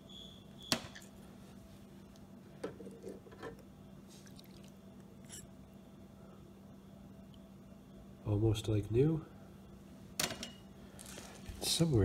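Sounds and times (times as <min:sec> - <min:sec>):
faint steady hum: 0:00.0 - 0:12.0
faint liquid drips: 0:04.1 - 0:05.4.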